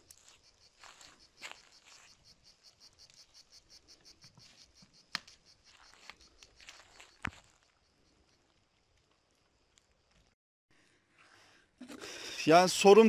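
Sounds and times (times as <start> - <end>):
insects chirping: 0.0 - 10.4.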